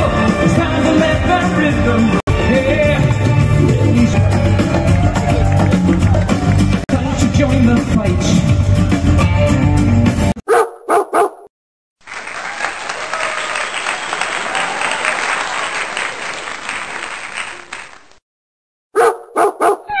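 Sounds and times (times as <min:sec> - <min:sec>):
live concert music: 0:00.0 - 0:10.3
crowd applause: 0:03.9 - 0:06.8, 0:12.0 - 0:18.2
dog barking: 0:10.4 - 0:11.5, 0:19.0 - 0:20.0.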